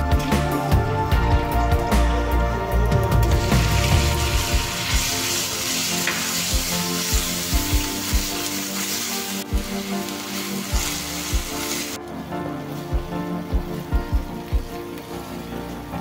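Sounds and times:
meat sizzling in oil: 3.2s - 16.0s.

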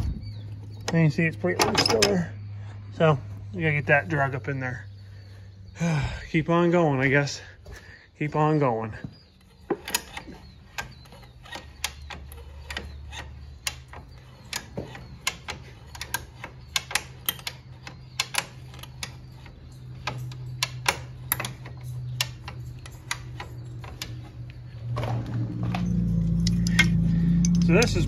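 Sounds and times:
ratchet clicking: 9.8s - 24.7s, 26.2s - 28.0s.

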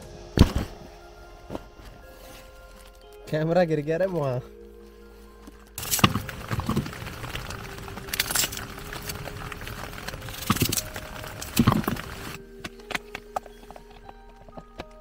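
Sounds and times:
tent fabric flapping: 5.6s - 15.0s
wind and rain on tent: 5.8s - 12.7s.

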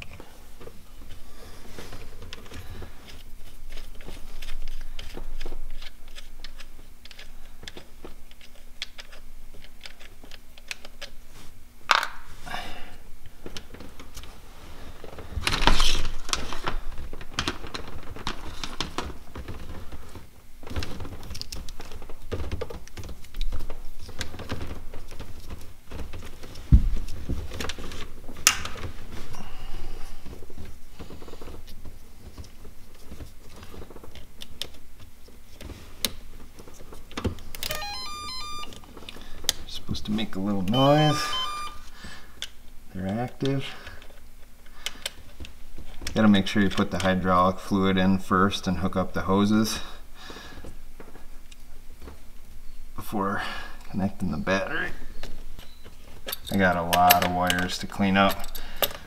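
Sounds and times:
clicks and rattles of wire connectors: 2.2s - 11.2s, 15.4s - 28.9s, 42.4s - 47.2s, 55.2s - 59.0s
knocks and rustles: 13.3s - 29.3s.

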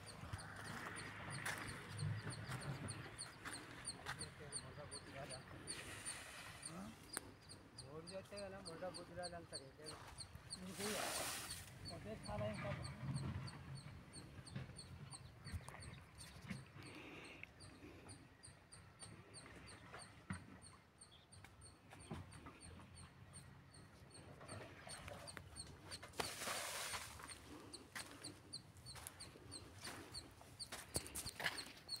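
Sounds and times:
rustling hiss: 10.7s - 11.8s, 26.2s - 27.2s.

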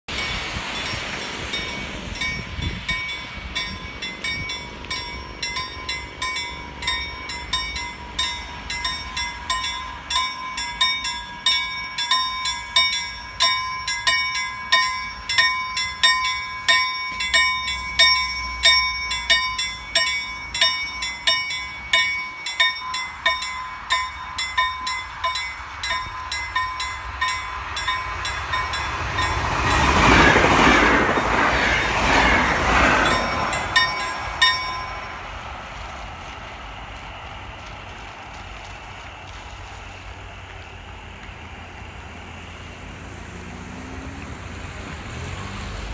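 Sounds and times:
level crossing bells ringing: 0.1s - 30.4s, 31.0s - 35.4s
electric train rumbling past: 0.1s - 45.9s.

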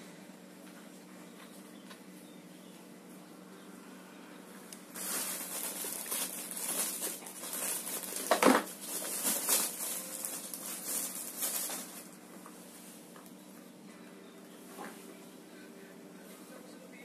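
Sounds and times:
plastic packaging crinkling: 4.8s - 12.4s.

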